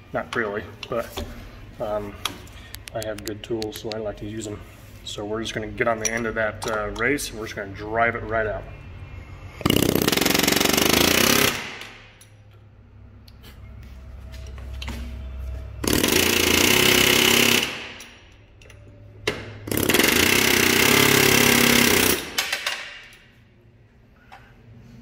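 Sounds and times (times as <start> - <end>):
pneumatic air hammer chattering: 9.6 - 11.8, 15.8 - 18.0, 19.7 - 22.8.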